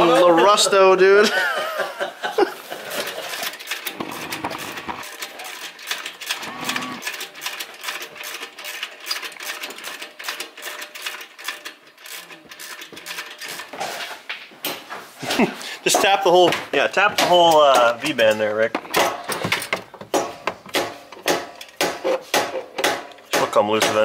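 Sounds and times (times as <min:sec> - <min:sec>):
metallic clicking of hand tools: 0:03.0 - 0:13.7, 0:17.1 - 0:24.0.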